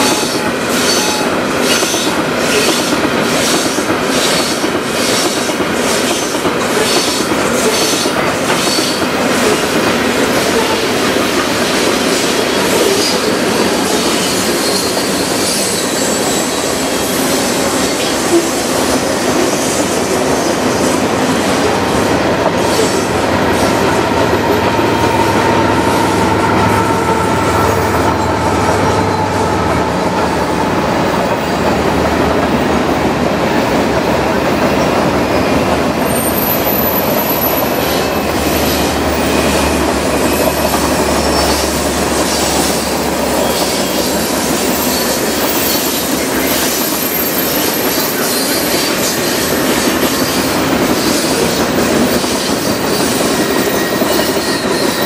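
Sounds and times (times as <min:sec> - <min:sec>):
train wheels rumbling on rail: 0:00.0 - 0:55.0
wheel squeal: 0:12.3 - 0:20.1, 0:36.0 - 0:55.0.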